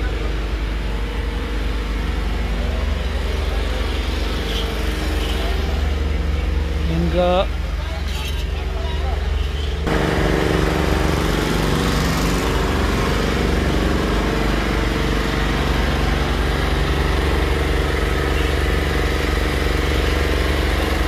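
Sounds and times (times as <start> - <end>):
motor drone: 9.8 - 21.0.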